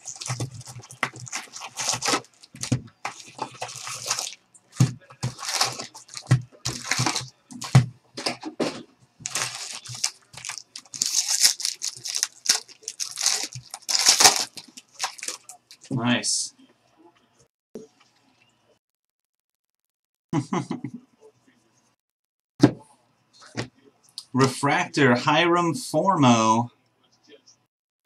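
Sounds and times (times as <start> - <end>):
packaging tearing and crinkling: 0.0 - 7.8, 9.2 - 15.9.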